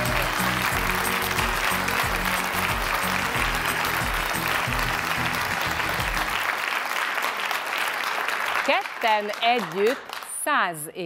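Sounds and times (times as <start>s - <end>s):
music with bass line: 0.0s - 6.4s
audience applauding: 0.0s - 10.5s.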